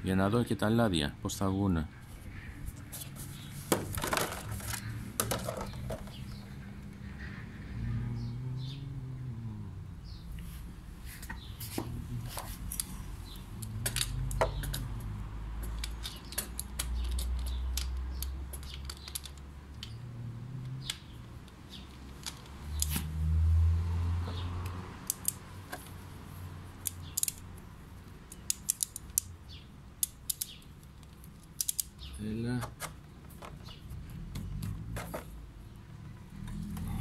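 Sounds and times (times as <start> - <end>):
low rumbling handling noise: 2.8 - 8.7.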